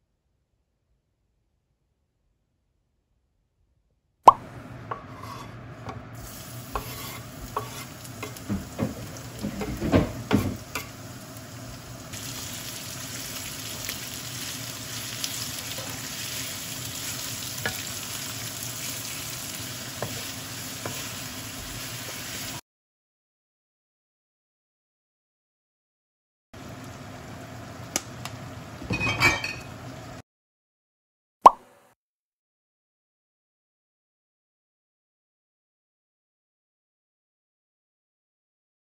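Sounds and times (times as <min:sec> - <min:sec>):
meat sizzling in a pan: 0:06.2 - 0:22.6
wooden spatula stirring: 0:06.3 - 0:11.0, 0:15.2 - 0:22.6.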